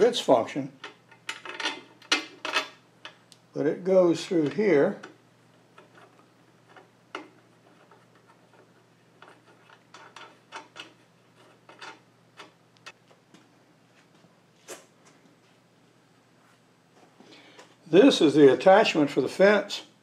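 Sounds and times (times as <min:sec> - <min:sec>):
metal parts clicking and tapping: 0:00.8 - 0:03.2, 0:05.8 - 0:13.0.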